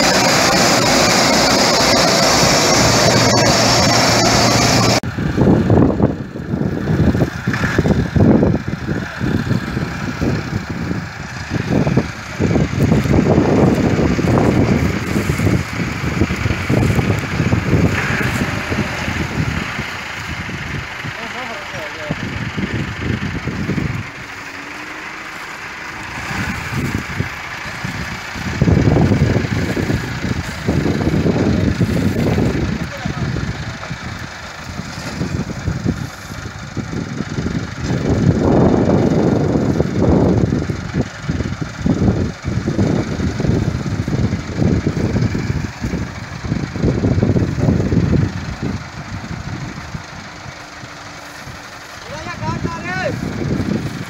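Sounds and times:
straw blowing rushing hiss: 0.0s - 5.0s, 8.9s - 36.7s
machine and engine noise: 0.0s - 54.0s
tractor and reaper rumbling: 0.0s - 54.0s.

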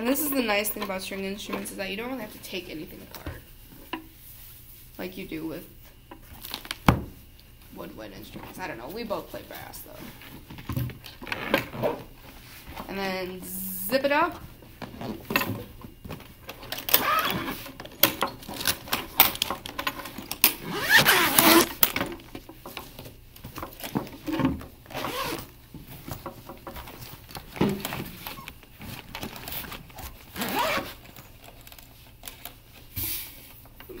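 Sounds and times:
zipper running: 16.9s - 17.6s, 20.6s - 21.7s, 24.9s - 25.5s, 30.3s - 31.0s.

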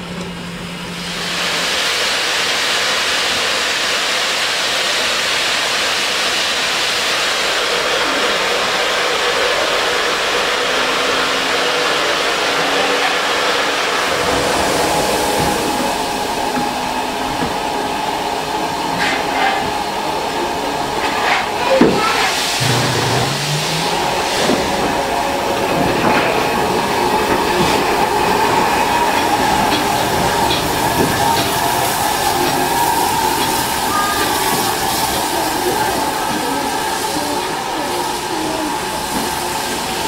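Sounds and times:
steam locomotive hissing: 0.0s - 40.0s.

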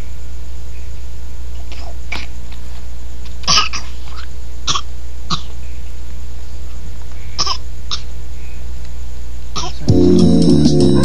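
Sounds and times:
steady low hum: 0.0s - 11.0s
toddler coughing: 1.7s - 2.4s, 3.4s - 5.6s, 7.4s - 8.1s, 9.6s - 9.9s.

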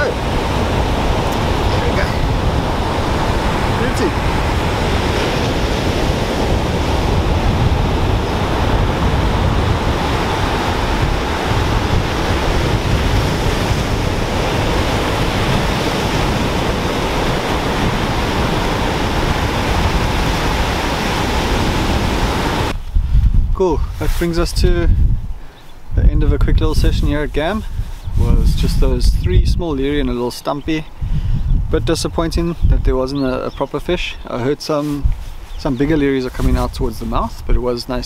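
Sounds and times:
surf breaking on beach: 0.0s - 22.8s
wind rumbling on microphone: 0.0s - 38.0s.

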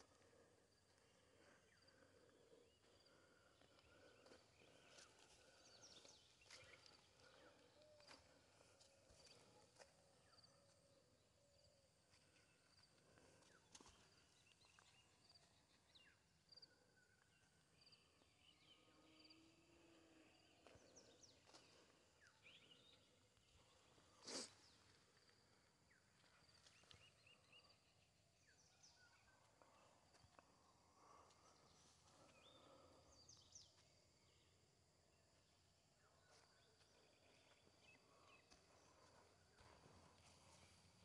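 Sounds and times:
faint bird chirps: 0.0s - 41.0s.

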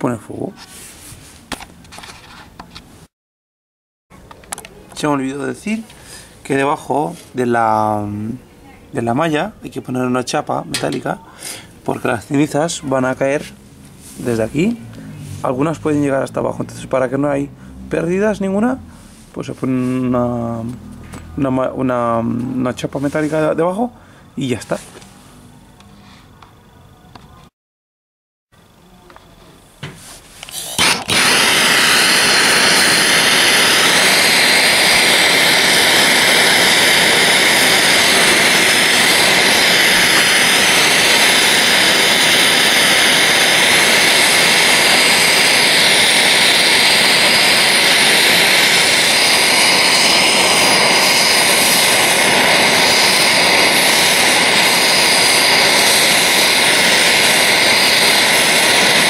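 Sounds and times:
blowtorch hissing: 30.4s - 59.0s.

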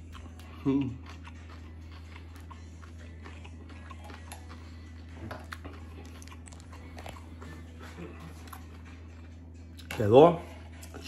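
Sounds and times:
person chewing crunchy food: 0.0s - 11.0s
steady low hum: 0.0s - 11.0s.

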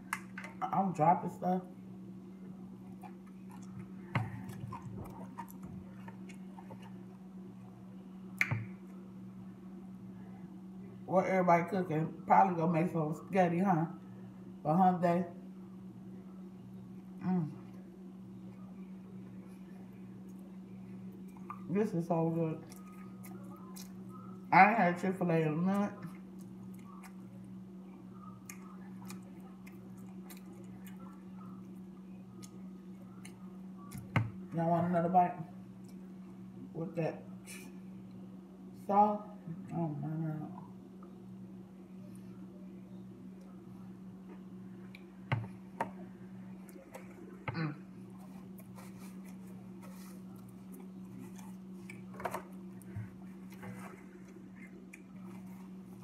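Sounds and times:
steady low hum: 0.0s - 56.0s
close-up chewing food: 2.7s - 7.3s, 22.6s - 24.5s, 26.0s - 34.5s
quiet chewing: 2.7s - 7.3s, 17.0s - 21.7s, 22.6s - 24.5s, 26.0s - 34.5s, 35.7s - 36.4s, 46.4s - 56.0s.

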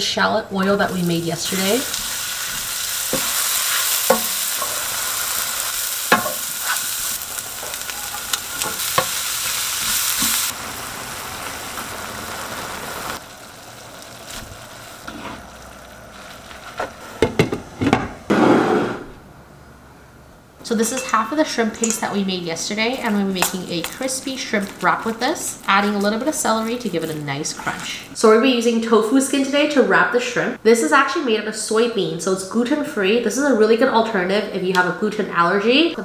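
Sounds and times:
vegetables sizzling in oil: 0.6s - 17.7s, 20.7s - 28.2s.

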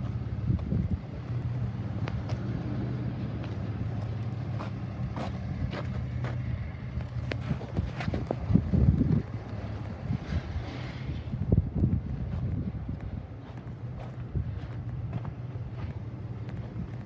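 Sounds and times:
low motor hum: 0.0s - 17.0s
footsteps crunching on gravel: 3.3s - 10.8s, 11.8s - 17.0s.

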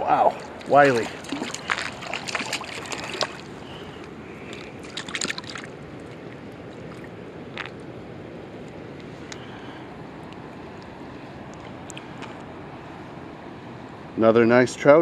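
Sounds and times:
fish splashing in shallow water: 0.0s - 7.8s
creek flowing: 0.0s - 12.9s.

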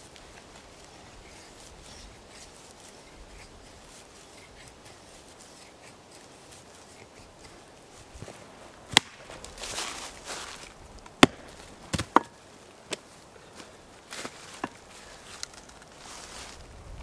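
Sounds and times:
blade chopping into wood: 8.9s - 9.4s, 11.1s - 13.0s.

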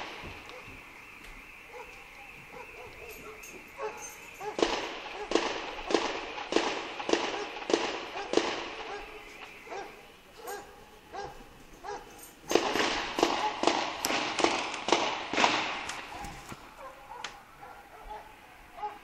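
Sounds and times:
dog barking: 0.4s - 0.8s, 1.7s - 5.5s, 7.3s - 12.4s, 13.2s - 13.7s, 16.1s - 19.0s.

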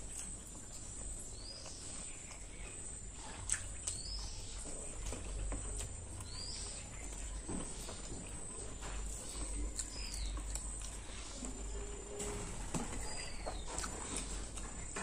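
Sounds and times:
person chewing with mouth clicks: 0.0s - 11.9s, 13.0s - 15.0s
bird chirps: 12.9s - 14.4s.

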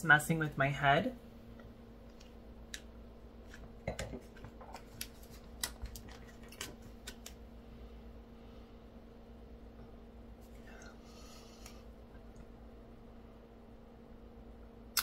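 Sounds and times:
low hum: 7.2s - 15.0s.

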